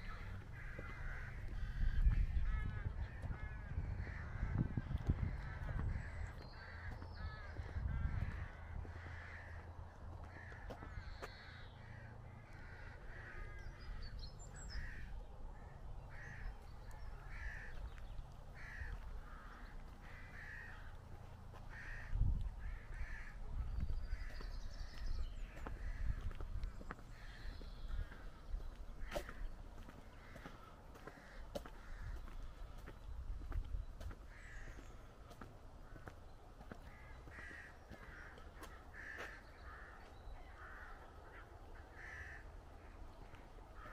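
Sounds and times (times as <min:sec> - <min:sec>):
low microphone rumbles: 0:00.0 - 0:09.3
rooks cawing: 0:00.0 - 0:43.9.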